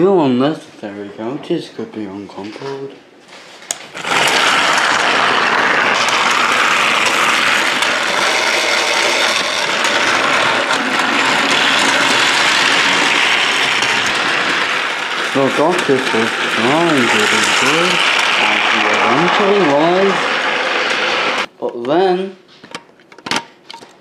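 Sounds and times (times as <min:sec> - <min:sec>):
toy train motor whirring: 0:03.9 - 0:21.5.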